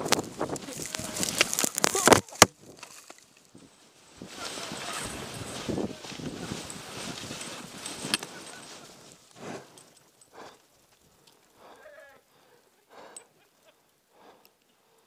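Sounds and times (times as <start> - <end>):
snow rushing and scraping: 0.0 - 10.0.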